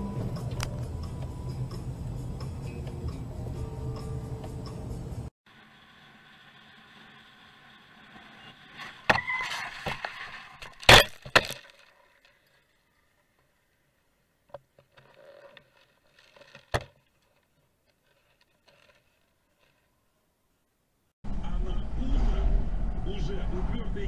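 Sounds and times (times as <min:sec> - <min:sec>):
vehicle driving noise: 0:00.0 - 0:10.8, 0:21.3 - 0:24.0.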